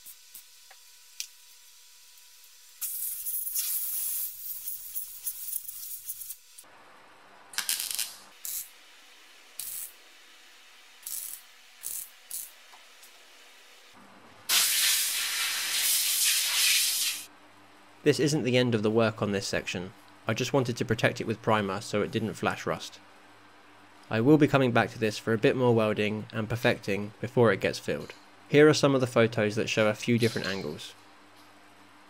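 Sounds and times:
crackling welding bursts: 0.0s - 6.6s, 7.6s - 8.8s, 9.5s - 10.0s, 10.9s - 13.2s, 14.5s - 17.3s
air blow gun hissing: 14.5s - 17.3s.

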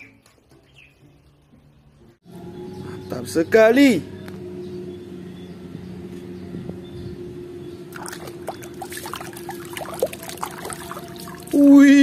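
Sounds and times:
water splashing in a basin: 7.9s - 11.8s.

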